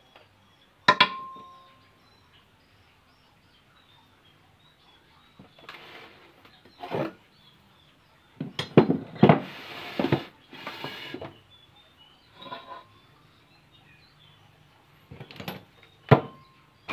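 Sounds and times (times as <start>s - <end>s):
sharp metal knocks: 0.9s - 1.5s.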